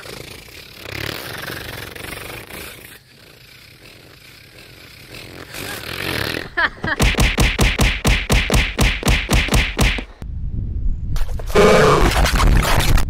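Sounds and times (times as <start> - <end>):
rough buzzing noise: 0.0 - 10.2.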